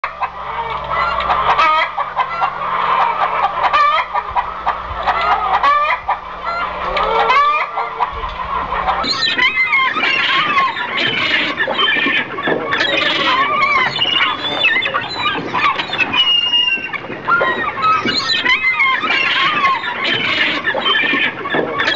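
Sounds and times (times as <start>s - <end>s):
fowl calling: 0.0s - 21.9s
low steady hum: 0.0s - 21.9s.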